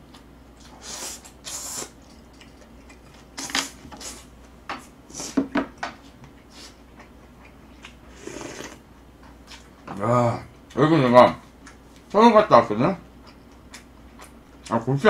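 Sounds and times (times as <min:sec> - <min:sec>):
person slurping noodles: 0:00.8 - 0:01.9, 0:08.1 - 0:08.8.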